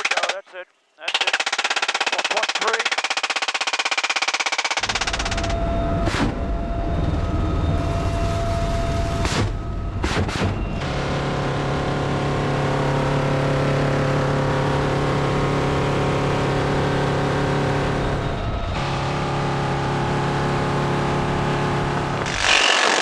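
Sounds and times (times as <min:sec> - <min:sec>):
helicopter drone from inside cabin: 0:04.8 - 0:22.3.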